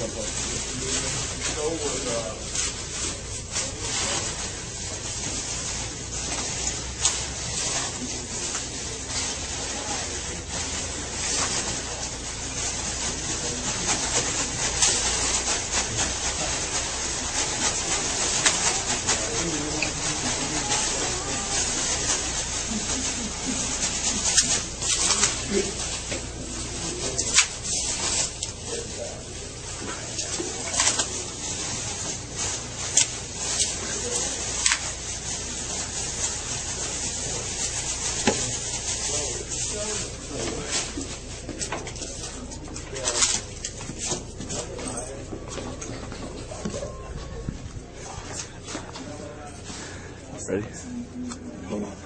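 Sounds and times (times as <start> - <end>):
plastic wrap crackling: 0.0 - 49.4
plastic wrap popping: 30.2 - 44.4.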